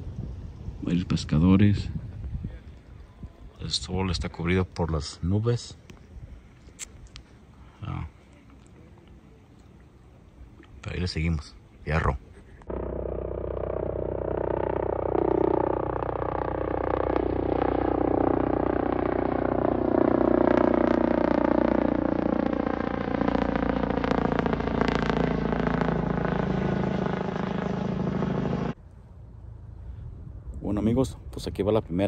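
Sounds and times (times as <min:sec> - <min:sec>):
helicopter flying overhead: 0:12.7 - 0:28.8.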